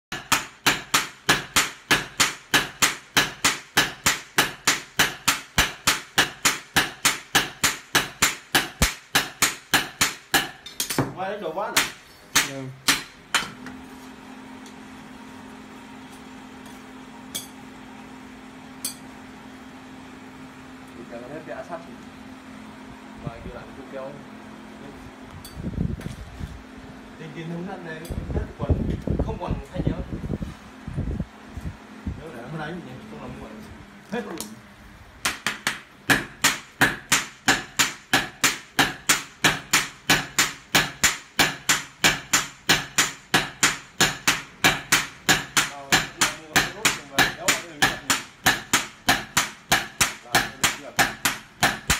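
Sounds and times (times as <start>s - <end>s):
forge air blower hum: 0.1s - 51.9s
hammers ringing on anvil: 18.8s - 19.1s, 35.4s - 51.9s.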